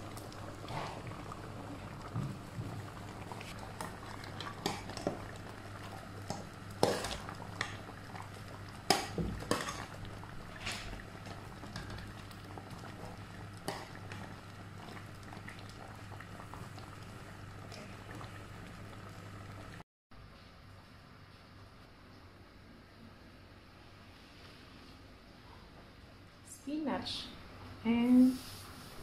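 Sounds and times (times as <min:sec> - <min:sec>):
soup bubbling: 0:00.0 - 0:19.8.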